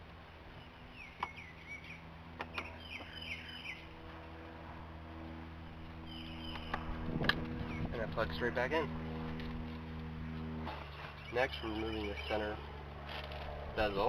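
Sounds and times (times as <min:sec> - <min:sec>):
bird chirping: 0:00.6 - 0:04.0, 0:06.0 - 0:07.0, 0:07.6 - 0:08.0, 0:10.2 - 0:12.7.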